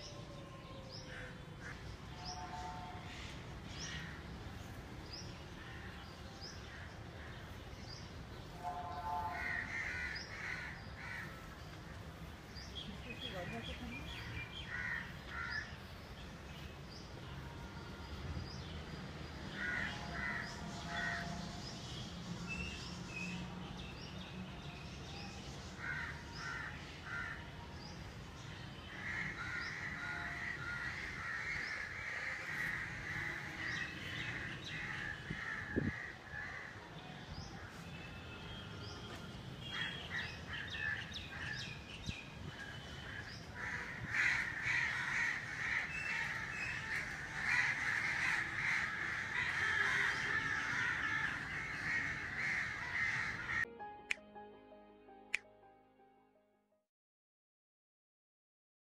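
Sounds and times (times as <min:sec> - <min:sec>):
birds calling: 0:42.8 - 0:53.7.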